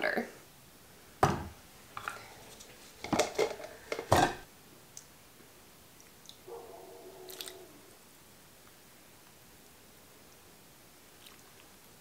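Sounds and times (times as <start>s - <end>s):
containers clinking on countertop: 3.0s - 4.4s.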